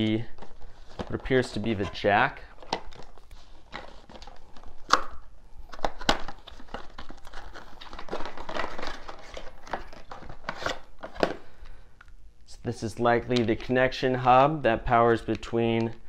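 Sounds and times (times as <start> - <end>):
cardboard and packaging rustling: 0.0 - 11.7.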